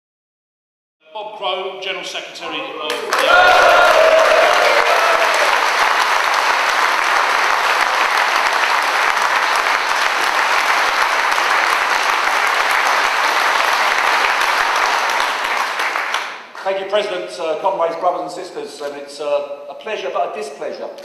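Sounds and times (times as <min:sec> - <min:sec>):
large crowd applauding: 0:02.9 - 0:16.8.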